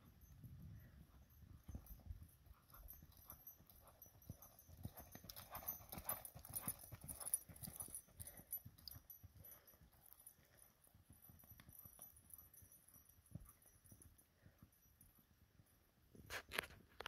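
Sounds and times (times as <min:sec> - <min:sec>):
hoofbeats on sand: 0:00.2 - 0:14.9.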